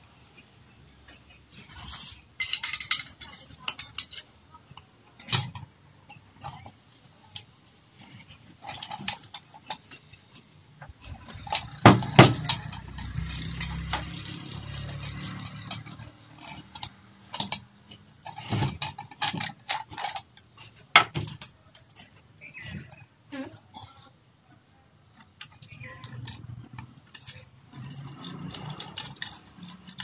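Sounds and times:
metal lamp parts clinking: 1.1s - 6.7s, 8.2s - 10.0s, 11.1s - 23.0s, 25.3s - 30.0s.

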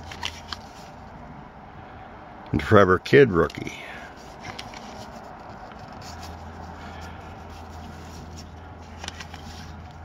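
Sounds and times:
trading cards rustling and clicking: 0.0s - 1.0s, 3.4s - 10.0s.

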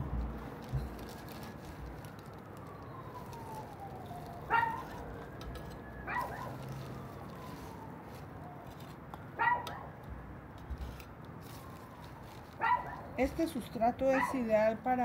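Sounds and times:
siren wailing: 0.6s - 9.5s, 11.4s - 13.8s
dog barking: 4.5s - 4.8s, 9.4s - 9.9s, 12.6s - 13.0s, 14.2s - 14.4s.

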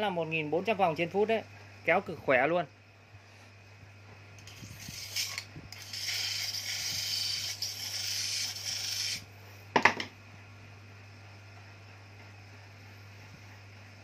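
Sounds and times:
metal scraping on spinning pulley: 4.4s - 9.2s.

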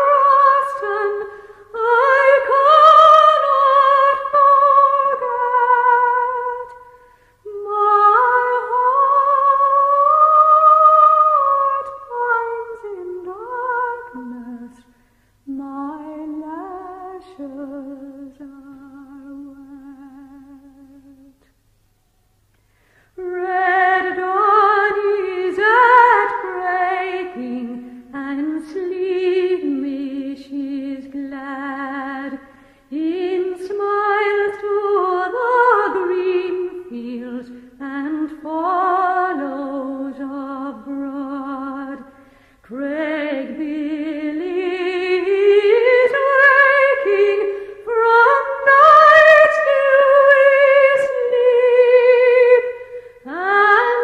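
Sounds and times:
woman singing unaccompanied: 0.0s - 21.5s, 23.2s - 54.0s.

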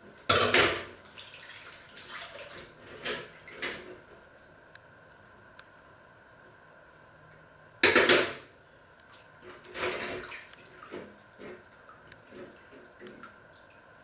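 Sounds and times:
water splashing: 1.0s - 2.7s.

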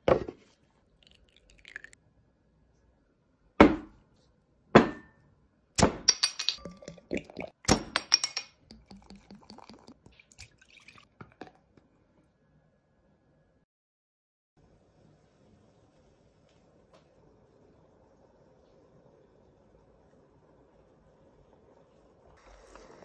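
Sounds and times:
beer pouring into glass: 1.0s - 2.0s, 6.6s - 11.8s
glass bottles clinking: 6.0s - 11.6s.

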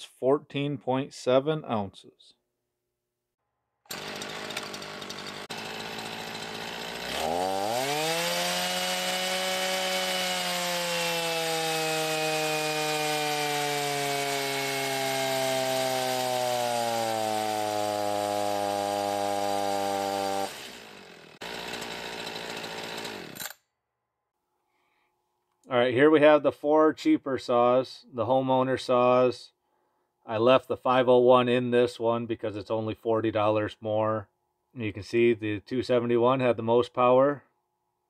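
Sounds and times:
chainsaw engine revving: 3.9s - 23.6s.

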